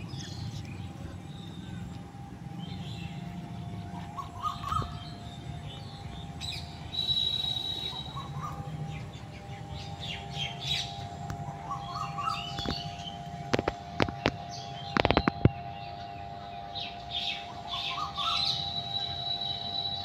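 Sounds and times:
faint steady hum: 0.0s - 20.0s
small birds chirping: 0.0s - 20.0s
whistled note: 6.4s - 9.0s, 17.3s - 20.0s.

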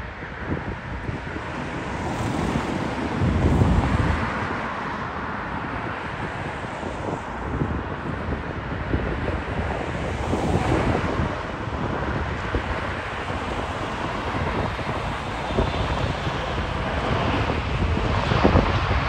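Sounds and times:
jet engines roaring: 0.0s - 19.0s
wind buffeting microphone: 0.0s - 19.0s.

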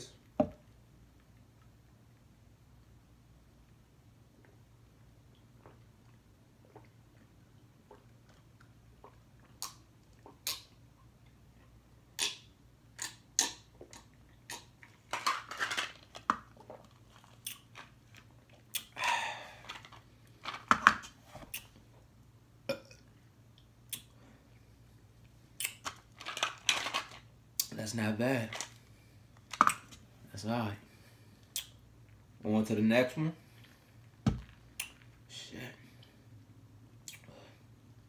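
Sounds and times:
cup knocking on wooden table: 0.4s - 0.6s
person gulping: 5.6s - 10.6s, 22.6s - 23.2s.

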